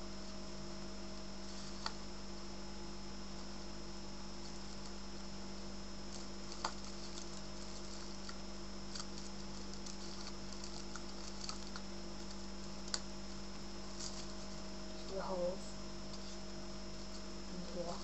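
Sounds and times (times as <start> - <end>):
steady hum with hiss: 0.0 - 18.0
hands rustling paper and foil: 6.1 - 13.0, 13.8 - 14.7.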